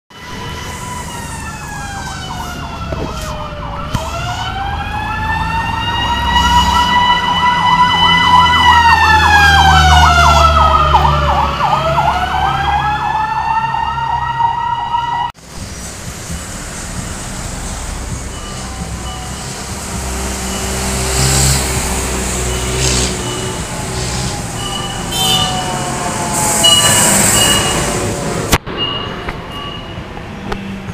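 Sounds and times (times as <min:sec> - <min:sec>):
fire truck siren: 0:00.1 - 0:15.4, 0:16.2 - 0:30.0
truck engine rumble: 0:00.2 - 0:30.9.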